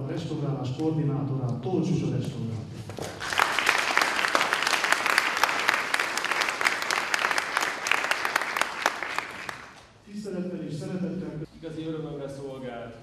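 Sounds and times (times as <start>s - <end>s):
audience applauding: 2.9s - 9.8s.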